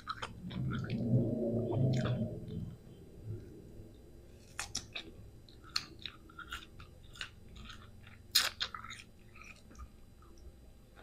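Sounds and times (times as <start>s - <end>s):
wet crunchy chewing: 0.0s - 1.0s, 4.3s - 10.4s.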